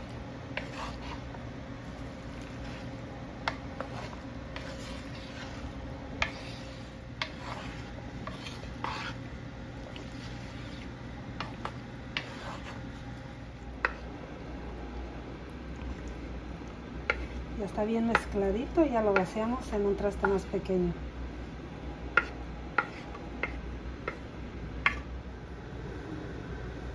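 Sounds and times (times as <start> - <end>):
salad rustling: 0.0 - 14.1.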